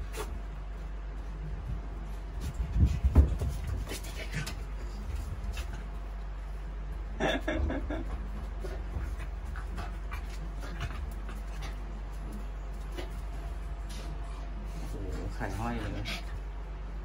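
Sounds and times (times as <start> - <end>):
animals scuffling: 0.0 - 7.1, 7.7 - 16.9
dog panting: 8.5 - 16.6.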